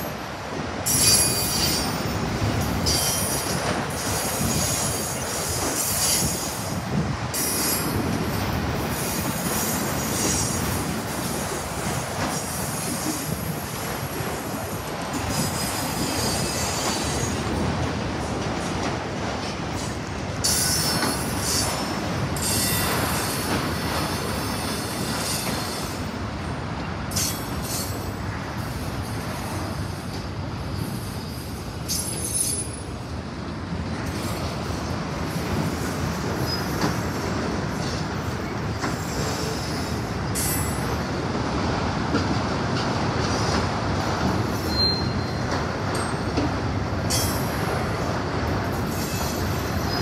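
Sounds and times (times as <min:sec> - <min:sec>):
high-pitched wheel squeals: 0:00.9 - 0:01.9, 0:44.6 - 0:45.4.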